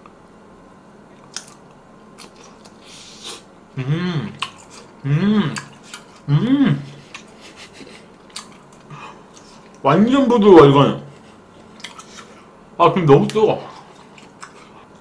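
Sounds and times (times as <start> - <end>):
wet mouth clicks chewing: 8.3 - 9.8, 11.7 - 12.4.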